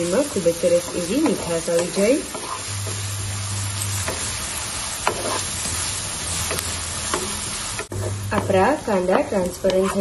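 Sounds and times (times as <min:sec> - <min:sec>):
onions sizzling in oil: 0:00.0 - 0:10.0
wooden spatula scraping pan: 0:00.7 - 0:03.0, 0:05.0 - 0:05.8, 0:09.6 - 0:10.0.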